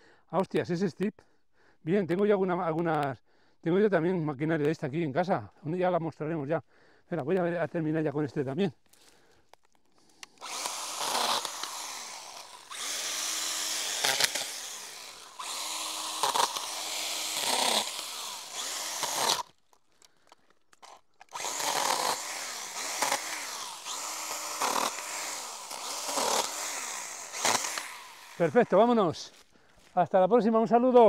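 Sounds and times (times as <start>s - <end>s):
mini chainsaw cutting branches: 10.0s - 29.5s.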